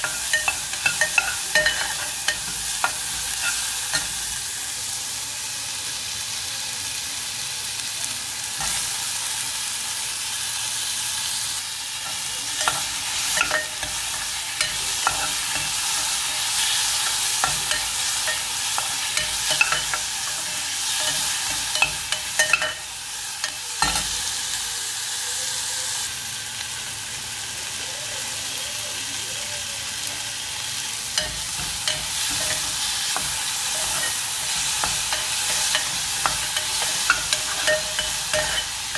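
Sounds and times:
spoon clinking and scraping pot: 0.0s - 4.4s, 12.0s - 24.2s, 31.2s - 38.9s
vegetables sizzling in hot oil: 0.0s - 38.9s.

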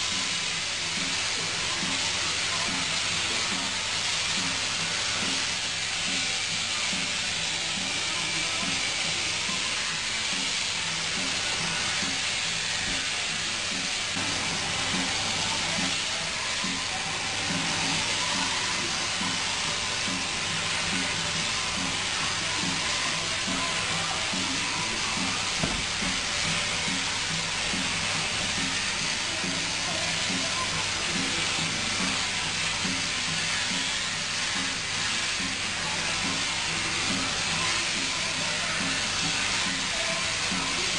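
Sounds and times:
electric shears hissing: 0.0s - 40.9s.

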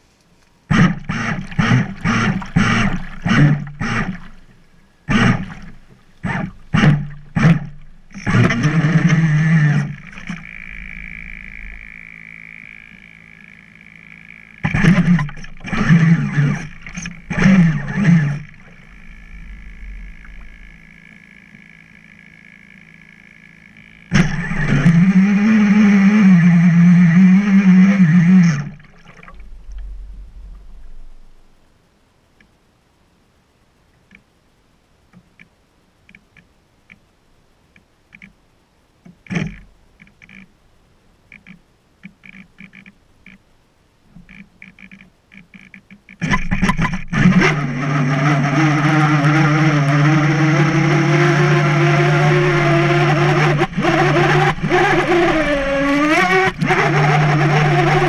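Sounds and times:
electric boat motor whining: 0.7s - 29.1s, 46.6s - 58.0s.

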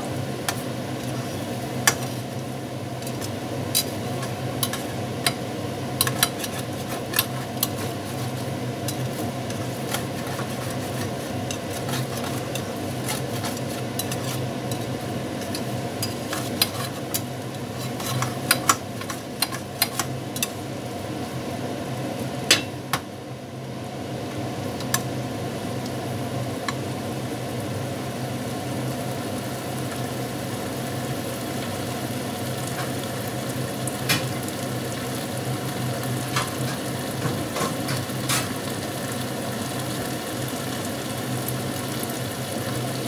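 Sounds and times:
steady low hum: 0.0s - 37.7s
faint sizzle of food: 0.0s - 43.0s
metal turner scraping frying pan: 3.0s - 20.6s.

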